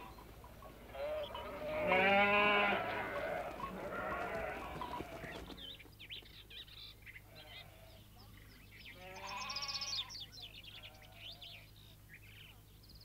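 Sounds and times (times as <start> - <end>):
sheep bleating: 0.9 - 5.4, 9.0 - 11.6.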